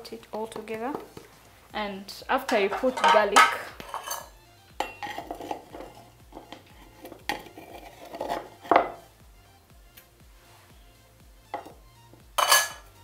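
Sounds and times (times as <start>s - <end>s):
faint background music: 0.0s - 13.0s
metal spoon knocking on pot: 2.4s - 9.0s, 12.4s - 12.8s.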